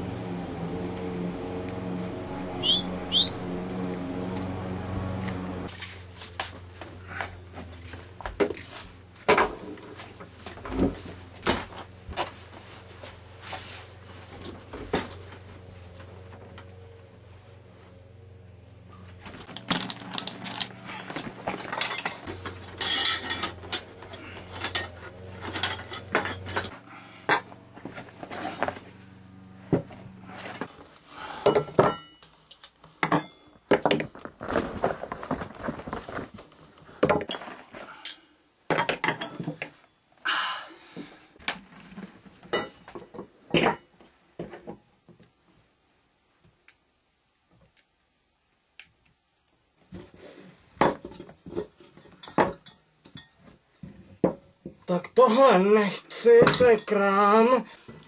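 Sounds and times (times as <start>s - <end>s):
metal tools clattering on wooden table: 21.5s - 26.7s, 31.5s - 32.2s, 38.8s - 39.7s, 50.8s - 53.5s.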